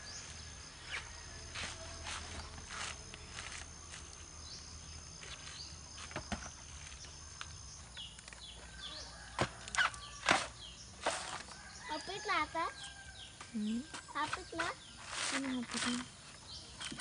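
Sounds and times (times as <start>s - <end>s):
small birds chirping: 0.0s - 17.0s
coconuts knocking and thudding: 6.0s - 6.6s, 9.2s - 11.5s.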